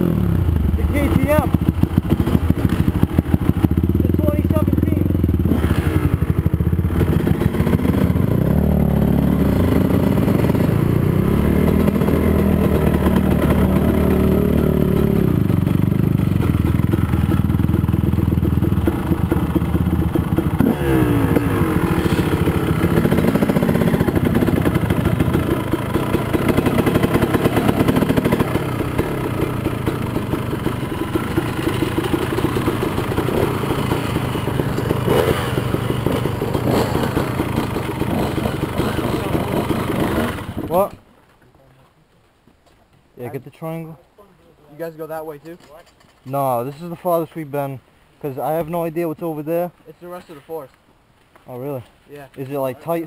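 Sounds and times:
quad bike engine revving: 0:00.0 - 0:41.0.

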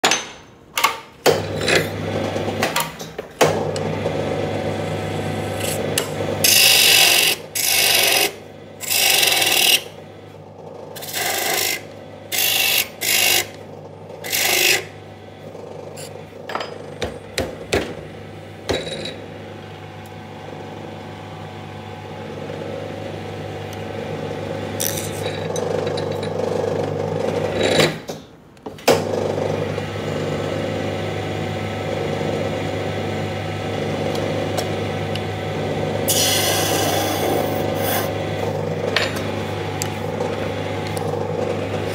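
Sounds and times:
small electric motor humming: 0:05.2 - 0:09.9, 0:36.0 - 0:38.9.

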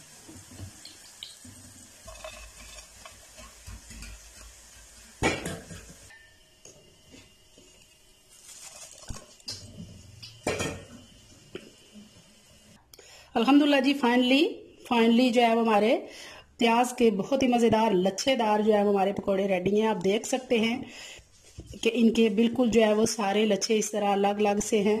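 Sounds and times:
hot oil sizzling in a pan: 0:00.0 - 0:12.8
wire skimmer scraping a pan: 0:02.0 - 0:06.2.

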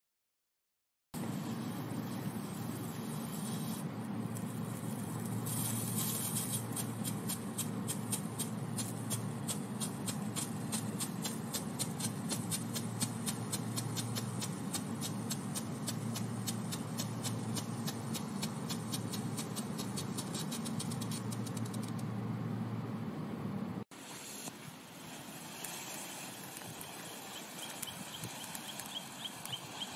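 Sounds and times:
firework fountain hissing: 0:01.2 - 0:21.7, 0:23.9 - 0:29.9
firework crackling pops: 0:04.7 - 0:21.9, 0:24.0 - 0:29.9.

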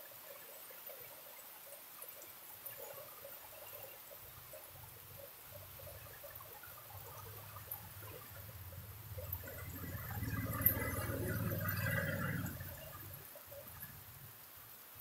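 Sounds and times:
steady rain: 0:00.0 - 0:15.0
auto-rickshaw engine: 0:06.8 - 0:13.2.

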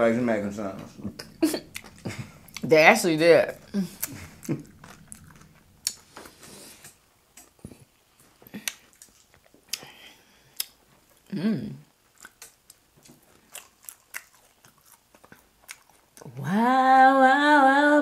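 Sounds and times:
voice humming: 0:00.8 - 0:06.0
chewing and lip smacking: 0:01.1 - 0:10.0, 0:10.6 - 0:11.3, 0:11.9 - 0:16.4.

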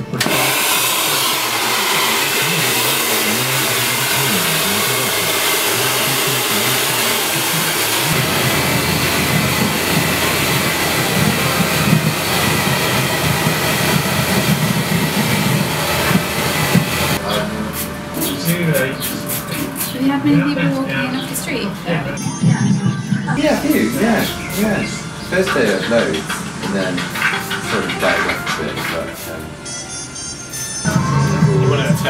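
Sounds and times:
hair dryer blowing: 0:00.0 - 0:18.0
deep rumble: 0:08.0 - 0:17.7.

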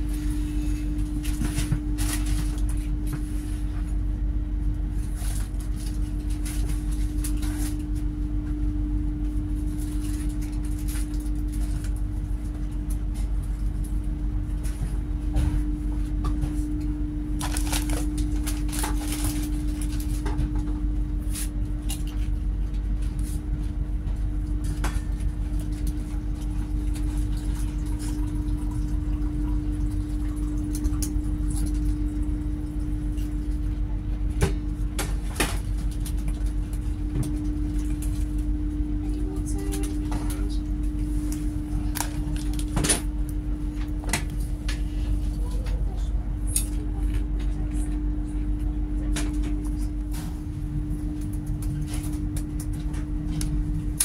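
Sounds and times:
constant hum: 0:00.0 - 0:54.0.

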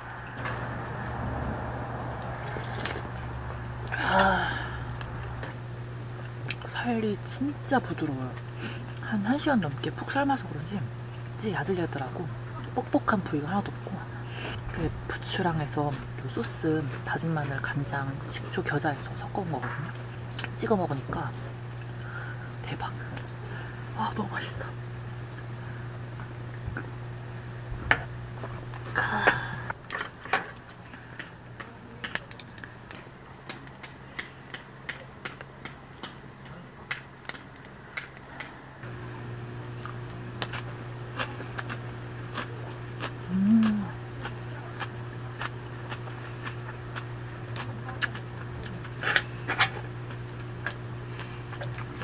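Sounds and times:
steady low hum: 0:00.0 - 0:52.0
person humming: 0:03.9 - 0:05.2, 0:43.2 - 0:44.0.

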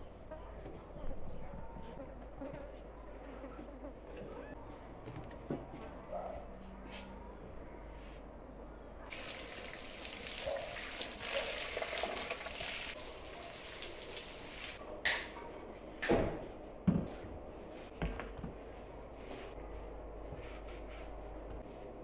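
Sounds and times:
food sizzling: 0:09.1 - 0:14.8.

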